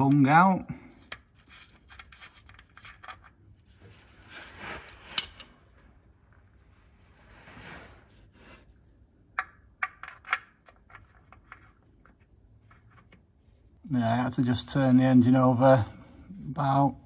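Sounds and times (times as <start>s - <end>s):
metal parts clicking and scraping: 5.0s - 5.8s.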